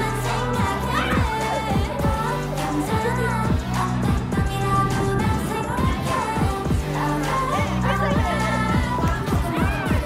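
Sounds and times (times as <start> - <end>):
person singing: 0.0 - 10.0
deep kick drum beat: 0.6 - 2.3, 2.9 - 4.6, 5.2 - 7.0, 7.6 - 10.0.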